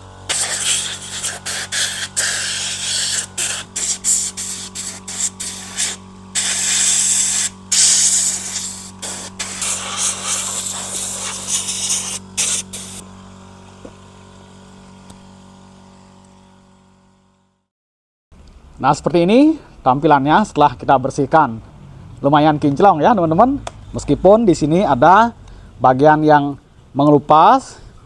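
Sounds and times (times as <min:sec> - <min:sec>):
steady low hum: 0:00.0 - 0:17.7
spray gun hissing in bursts: 0:00.2 - 0:13.0.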